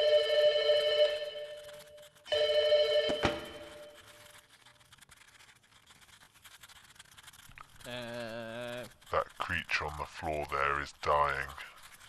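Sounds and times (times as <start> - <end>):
telephone bell ringing: 0.0 - 1.7, 2.3 - 3.9.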